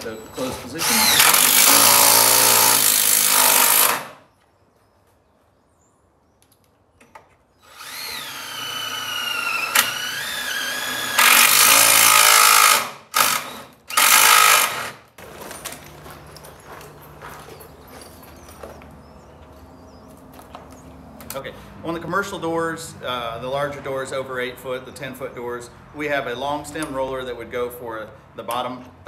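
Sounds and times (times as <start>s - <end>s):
cordless drill driving screws: 0.4s - 4.2s, 7.6s - 15.0s.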